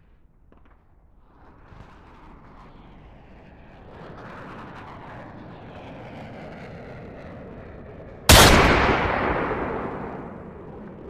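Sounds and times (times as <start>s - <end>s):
loud ringing bang: 8.3s - 11.0s
steady rumble: 8.3s - 11.0s.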